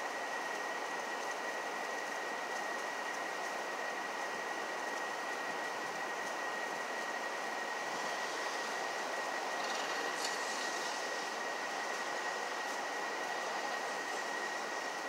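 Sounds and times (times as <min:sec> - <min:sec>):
thin high whine: 0:03.7 - 0:15.0.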